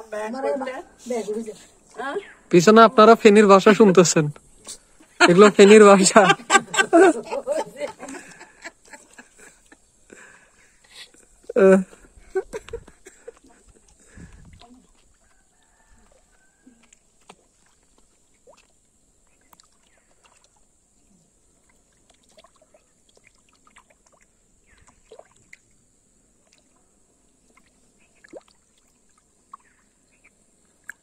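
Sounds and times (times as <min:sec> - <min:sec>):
steady high hiss: 0:00.0 - 0:14.1
small plops on water: 0:14.2 - 0:20.6, 0:21.6 - 0:25.7, 0:27.4 - 0:29.8.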